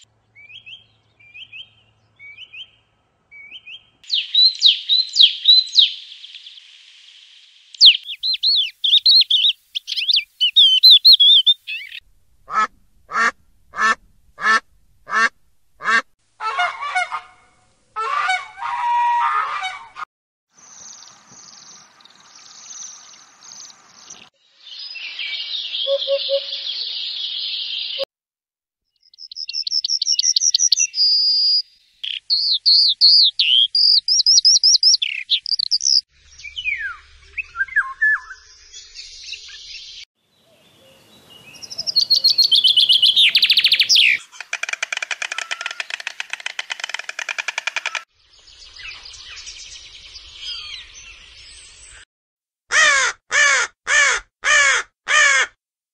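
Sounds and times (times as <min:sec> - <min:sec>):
evenly spaced bird calls: 0:00.0 - 0:20.0, 0:20.6 - 0:28.1, 0:28.9 - 0:52.0, 0:52.7 - 0:55.6
lark warbling song: 0:03.4 - 0:06.6, 0:07.7 - 0:17.1, 0:24.7 - 0:28.1, 0:29.0 - 0:52.0
fast bird trills: 0:07.8 - 0:12.0, 0:41.6 - 0:48.1
rough bird calls: 0:07.8 - 0:17.3, 0:40.4 - 0:51.3.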